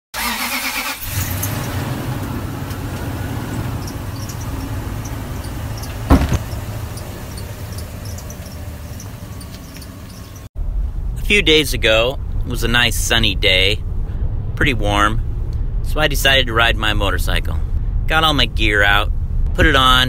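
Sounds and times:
truck engine running: 0:01.0 - 0:11.6
sharp thump: 0:06.0 - 0:06.6.

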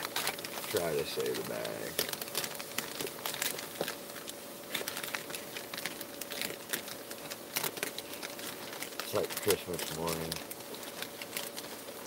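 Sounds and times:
mailing bag crinkling: 0:00.0 - 0:12.0.

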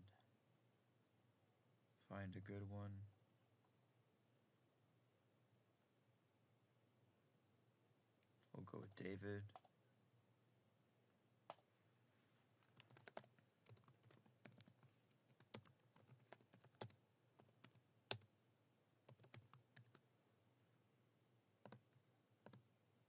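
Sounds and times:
typing on a keyboard: 0:12.6 - 0:18.3, 0:19.1 - 0:20.0, 0:21.6 - 0:22.6.

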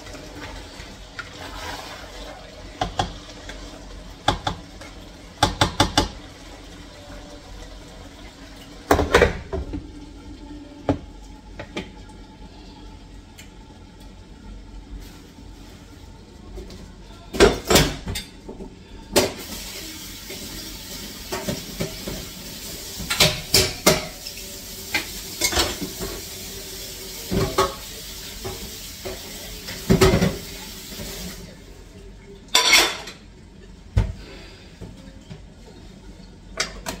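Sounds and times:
pots and dishes clinking: 0:32.5 - 0:33.3.

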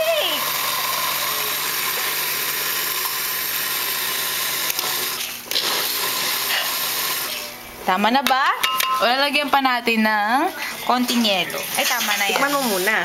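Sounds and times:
kitchen blender running: 0:00.0 - 0:07.6, 0:11.0 - 0:13.0.

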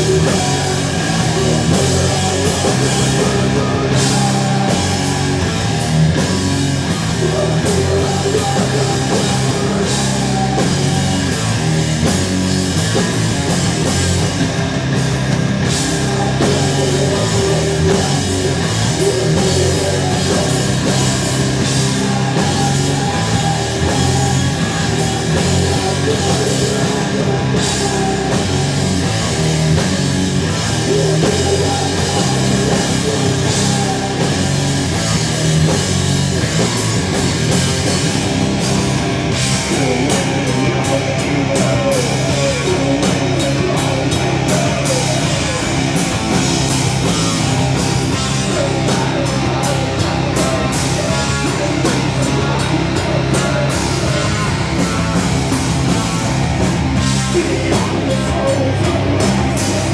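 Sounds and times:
heavy rock band playing: 0:00.0 - 0:59.9.

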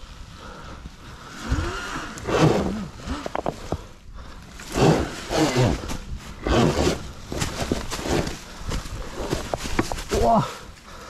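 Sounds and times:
man grunting and breathing hard: 0:10.1 - 0:11.0.

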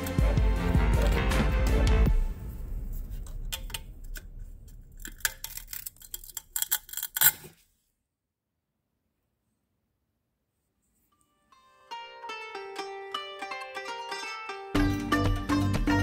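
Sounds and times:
pliers clicking on metal parts: 0:05.0 - 0:07.5.

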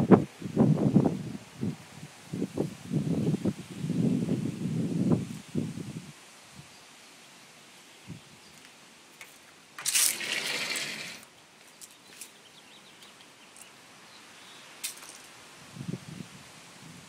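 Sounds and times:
leaves brushing microphone: 0:09.3 - 0:12.4.

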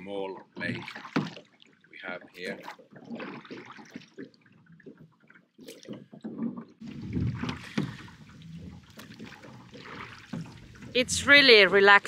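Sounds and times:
oars pulling through water: 0:00.0 - 0:12.0
water sloshing: 0:00.0 - 0:12.0
boat knocks: 0:04.9 - 0:12.0.

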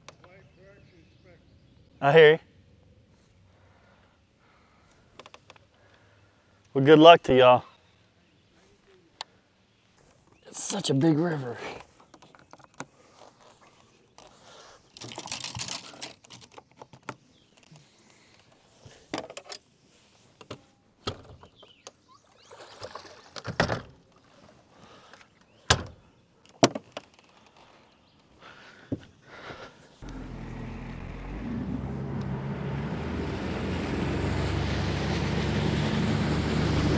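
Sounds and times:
fishing tackle knocks and clicks: 0:12.0 - 0:12.9.

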